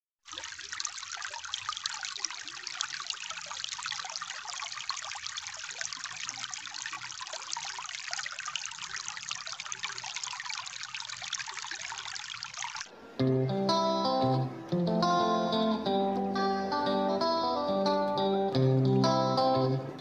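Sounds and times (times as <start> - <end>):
stream trickling over rocks: 0.2 - 12.9.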